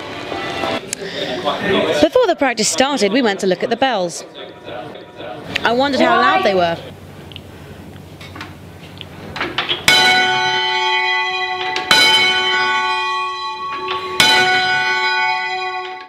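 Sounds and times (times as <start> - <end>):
church bell strokes: 9.9 - 16.0
knocks from swinging bell frame: 9.9 - 16.0.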